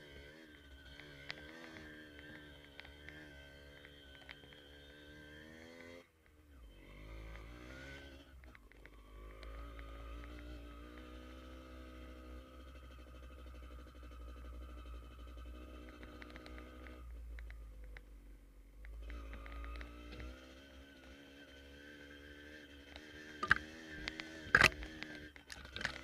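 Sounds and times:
motorcycle engine running: 0:07.0 - 0:26.0.

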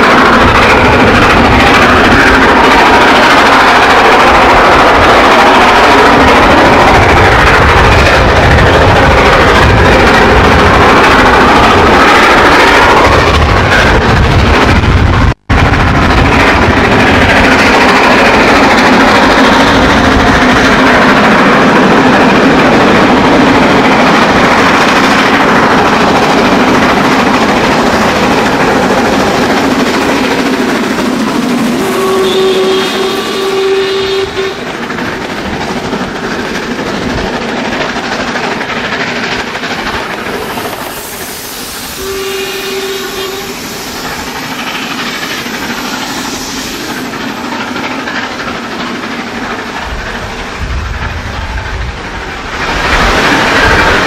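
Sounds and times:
steam locomotive exhaust: 0:23.4 - 0:54.0
hoarse train whistle: 0:31.7 - 0:34.8, 0:41.0 - 0:44.2.

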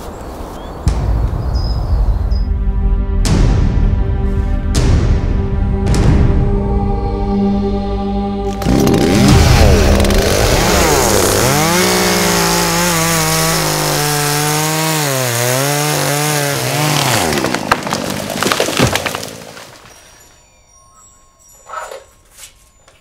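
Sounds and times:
chainsaw cutting wood: 0:08.5 - 0:19.7
wood cracking: 0:08.5 - 0:20.1.

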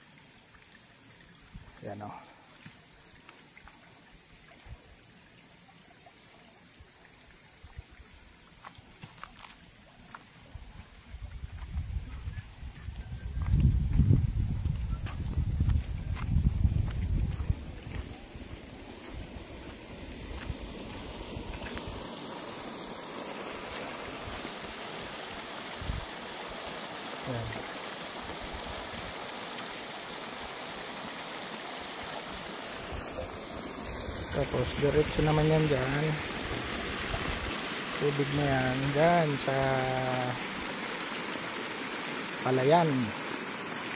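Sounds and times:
small water splashes: 0:00.0 - 0:11.6, 0:17.3 - 0:43.9
steady high hiss: 0:17.5 - 0:43.9.

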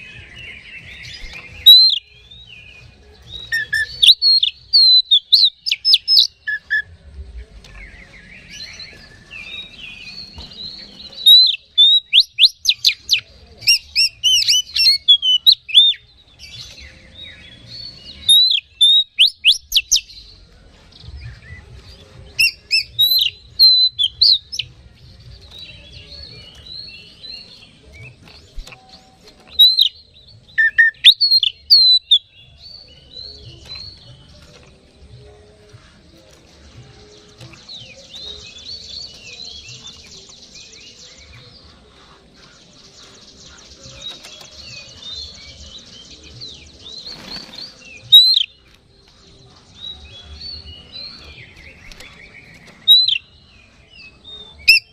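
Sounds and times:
bird singing whistled phrases: 0:00.0 - 0:06.9, 0:11.2 - 0:16.1, 0:17.2 - 0:20.2, 0:22.4 - 0:24.7, 0:29.5 - 0:34.0, 0:47.0 - 0:48.6, 0:49.8 - 0:54.9.

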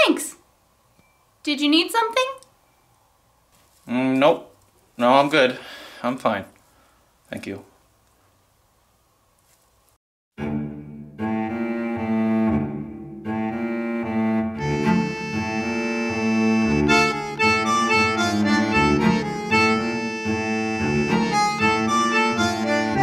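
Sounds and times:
instrumental music with held notes: 0:10.4 - 0:23.0.

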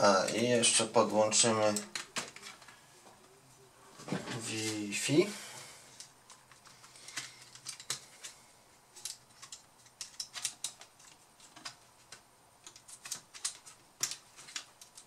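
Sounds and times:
fingers clicking laptop parts: 0:06.0 - 0:15.0.

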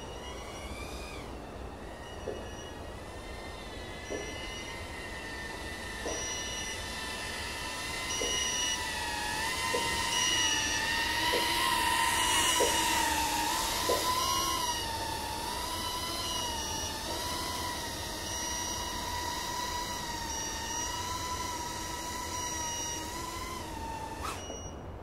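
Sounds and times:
drone motors whining: 0:00.0 - 0:25.0.

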